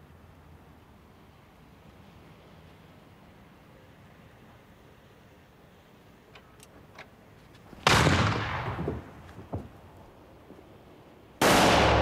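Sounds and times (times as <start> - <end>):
faint clicks: 6.3 - 7.7
gunshot: 7.8 - 9.1, 11.4 - 12.0.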